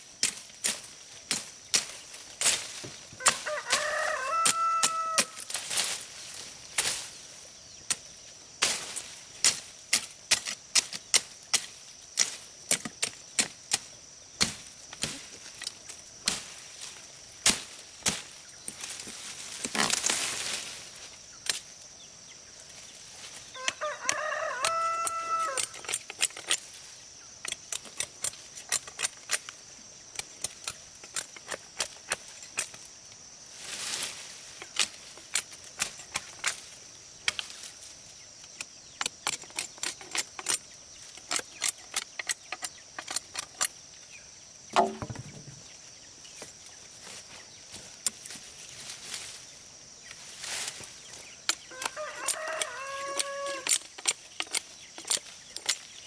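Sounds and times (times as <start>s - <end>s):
rooster crowing: 3.2s - 5.4s, 23.5s - 25.9s, 51.7s - 53.8s
sharp knocks of chopping: 44.7s - 45.6s.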